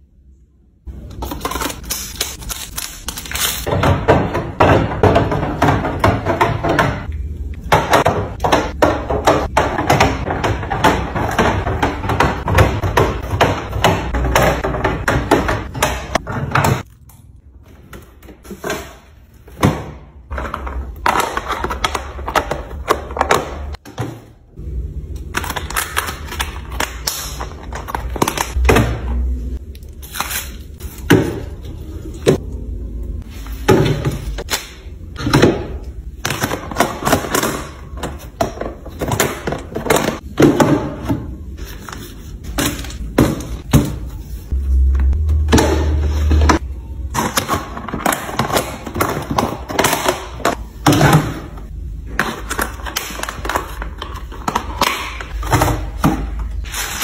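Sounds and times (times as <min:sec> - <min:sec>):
plastic items knocking on shelves: 0:03.6 - 0:07.1, 0:07.7 - 0:16.9, 0:17.8 - 0:24.4, 0:33.6 - 0:34.5, 0:35.2 - 0:41.5, 0:42.5 - 0:44.1, 0:45.2 - 0:56.6.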